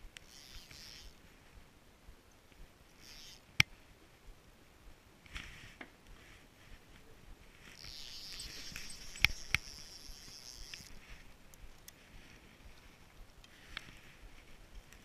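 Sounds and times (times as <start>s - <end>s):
fishing line hissing off reel: 0.2s - 1.2s, 2.9s - 3.5s, 7.6s - 11.8s
fishing reel clicks: 0.2s - 1.2s, 3.0s - 3.7s, 7.7s - 12.0s.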